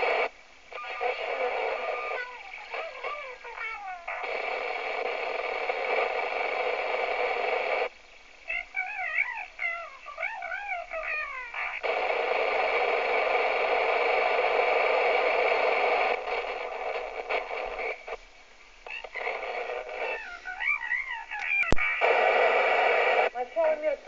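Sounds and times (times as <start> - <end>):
sharp radio click: 0.0 - 3.2, 4.1 - 7.9, 11.7 - 18.2, 18.9 - 20.5, 21.3 - 23.4
radio static hiss: 0.0 - 24.0.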